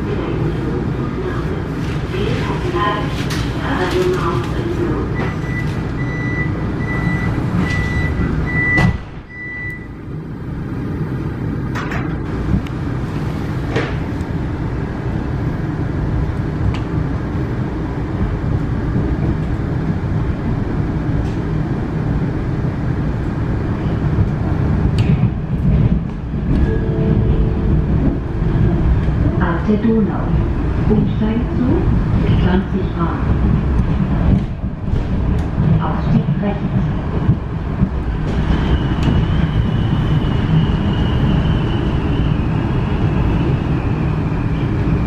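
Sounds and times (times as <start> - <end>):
train running on track: 0.0 - 45.0
train doors shutting: 3.2 - 10.0, 11.6 - 14.4, 37.1 - 44.9
door warning beeps: 5.1 - 10.0.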